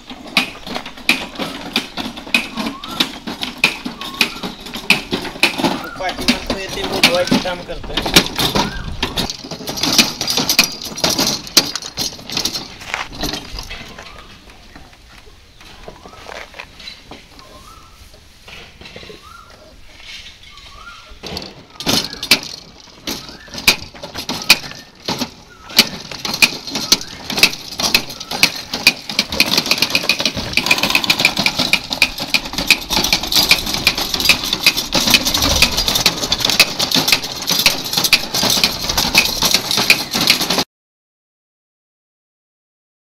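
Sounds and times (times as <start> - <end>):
seed planter clicking and rattling: 0.0 - 14.3, 21.2 - 40.7.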